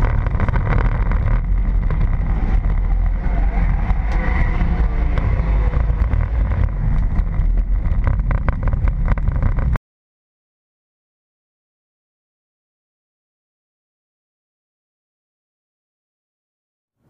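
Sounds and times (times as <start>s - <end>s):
car engine from inside cabin: 0.0s - 9.8s.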